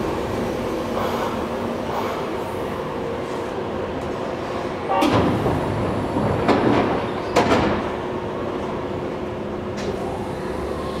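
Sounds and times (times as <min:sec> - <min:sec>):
stopped train humming: 0:00.0 - 0:11.0
pneumatic doors hissing air: 0:00.9 - 0:02.6.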